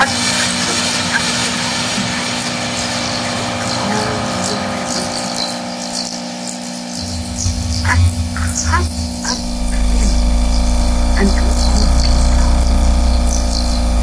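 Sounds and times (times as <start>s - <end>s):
dense wash of noise: 0.0s - 14.0s
layered hum tones: 0.0s - 14.0s.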